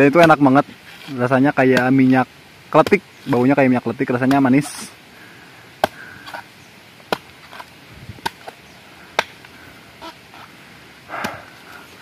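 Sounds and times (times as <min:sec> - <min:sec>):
machete chopping coconut husk: 0:00.1 - 0:03.5, 0:04.2 - 0:04.9, 0:05.8 - 0:09.5, 0:11.1 - 0:11.5.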